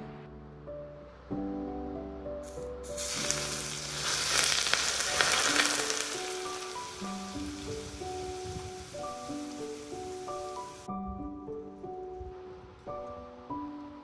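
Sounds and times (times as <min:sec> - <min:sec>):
hot oil sizzling and bubbling: 0:02.9 - 0:10.9.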